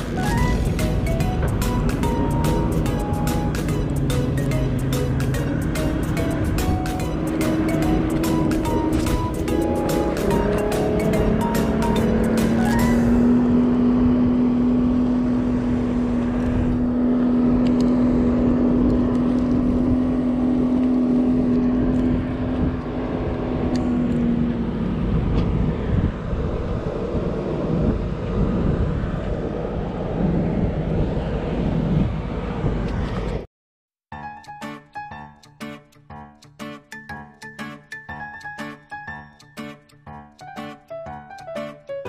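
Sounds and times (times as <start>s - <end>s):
vehicle engine rumble: 0.0s - 33.5s.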